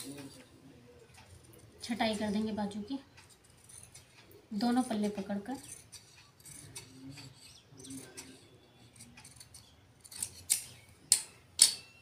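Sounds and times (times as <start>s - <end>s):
scissor blades scraping cloth: 5.0s - 10.8s
scissors snipping: 8.9s - 11.8s.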